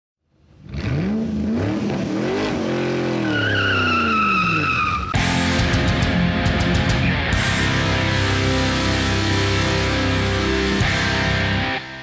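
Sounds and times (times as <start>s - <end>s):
car engine revving: 0.4s - 11.8s
tyre squeal: 3.2s - 5.2s
rock music with electric guitar: 5.1s - 12.0s.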